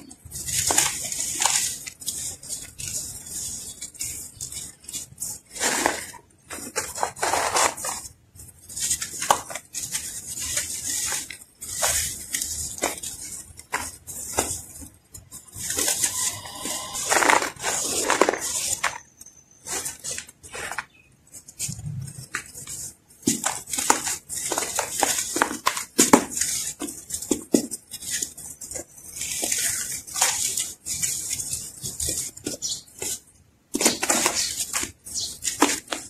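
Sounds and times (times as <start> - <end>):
hands crushing dry sand chunks: 0.0 - 36.0.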